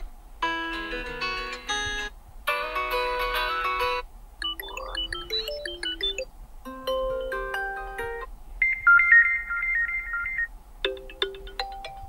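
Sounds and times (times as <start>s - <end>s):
electronic ringtone melodies: 4.4s - 12.0s.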